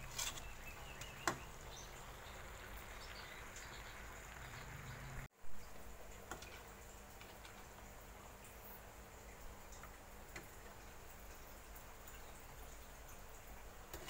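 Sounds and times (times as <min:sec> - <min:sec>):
fish sizzling in a wok: 0:00.0 - 0:05.3.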